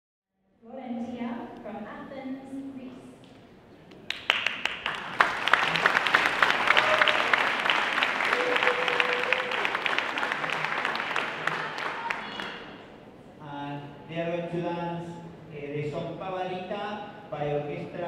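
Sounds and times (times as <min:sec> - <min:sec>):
audience applauding: 0:04.0 - 0:12.9.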